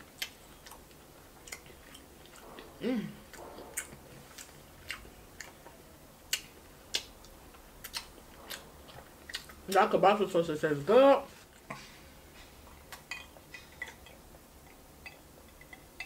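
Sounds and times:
wet chewing: 0.1 - 9.8.

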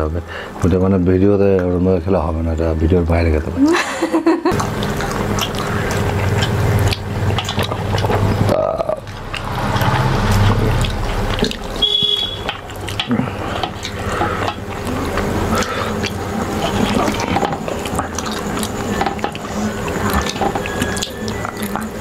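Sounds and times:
wet squelching of hand mixing food: 4.5 - 22.0.

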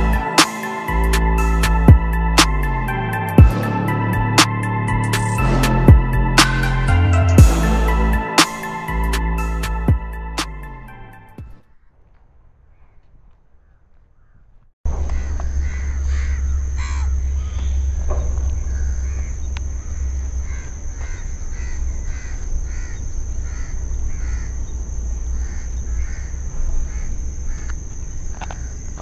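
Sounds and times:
high-pitched insect drone: 0.0 - 10.8, 15.2 - 29.0
crows cawing: 13.6 - 24.7, 25.3 - 29.0.

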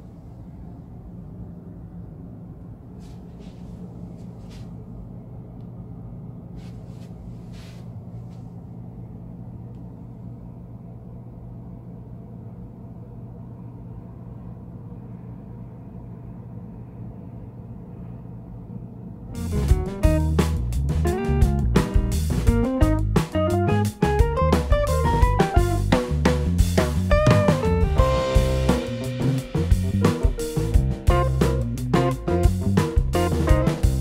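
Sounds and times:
constant low hum: 0.0 - 34.0.

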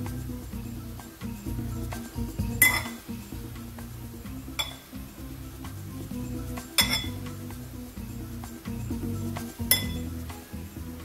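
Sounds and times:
background music: 0.0 - 11.0
fork clinking against glass bowl: 2.6 - 3.0, 4.6 - 4.9, 6.8 - 7.2, 9.7 - 10.0.

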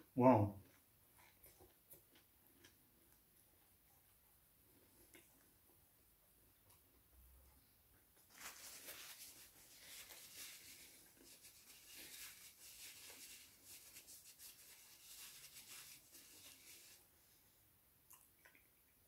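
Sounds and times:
crunchy chewing of fried snacks: 0.6 - 14.0.

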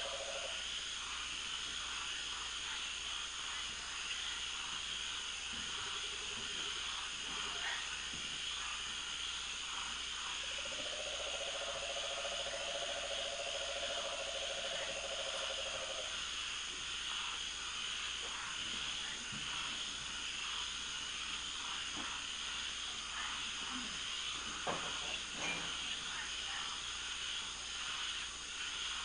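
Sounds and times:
shrill hum of insects and frogs: 0.0 - 29.0
low rapidly pulsed trill: 9.3 - 18.1.

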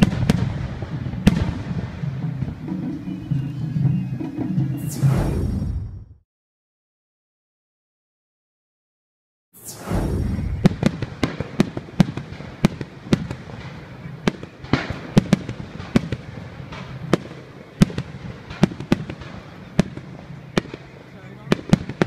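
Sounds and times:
background rumble: 9.6 - 21.4
firework shells bursting: 9.6 - 22.0.

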